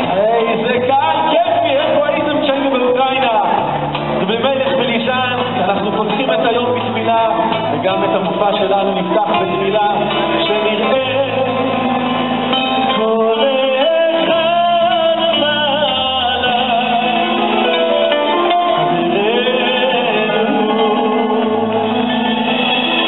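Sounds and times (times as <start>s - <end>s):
drums: 0.0s - 23.0s
guitar: 0.0s - 23.0s
man singing into microphone: 0.0s - 23.0s.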